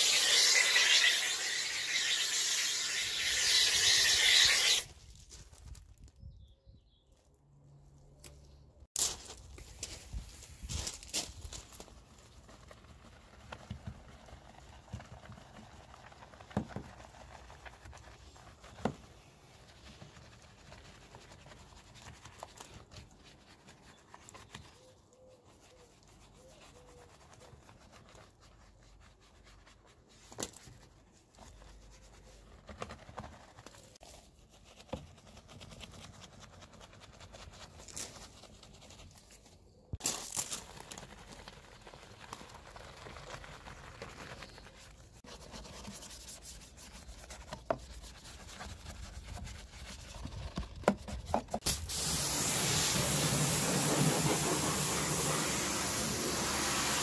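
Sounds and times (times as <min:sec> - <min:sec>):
brush scrubbing plastic: 0:00.0 - 0:04.9, 0:12.0 - 0:39.4, 0:40.6 - 0:57.0.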